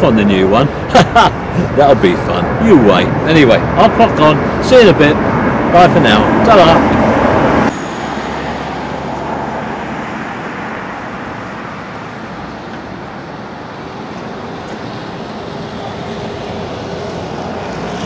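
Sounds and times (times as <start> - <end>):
distant road traffic: 0.0 - 18.0.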